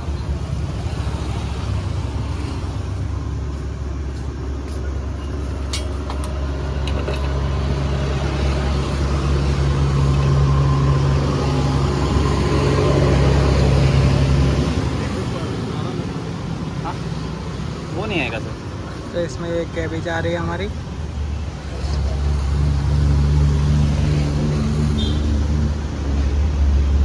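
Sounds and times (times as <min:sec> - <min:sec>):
road traffic: 0:00.0 - 0:27.0
vehicle engine hum: 0:00.0 - 0:27.0.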